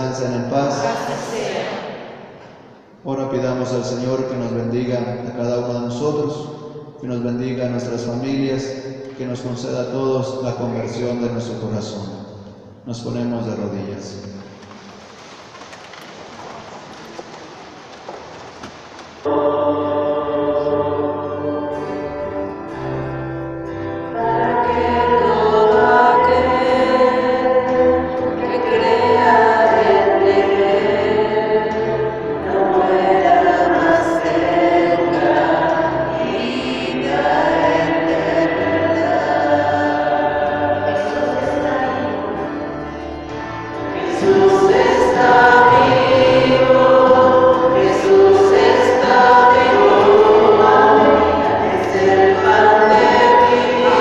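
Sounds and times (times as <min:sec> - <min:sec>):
choir singing a hymn: 0:00.0 - 0:02.9, 0:19.2 - 0:54.0.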